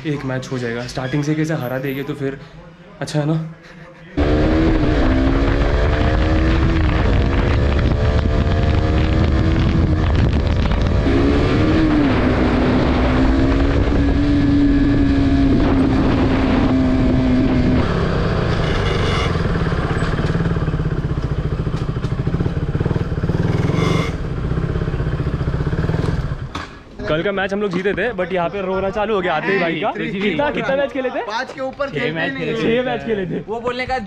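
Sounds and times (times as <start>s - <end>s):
motorcycle engine while riding: 4.2s - 26.6s.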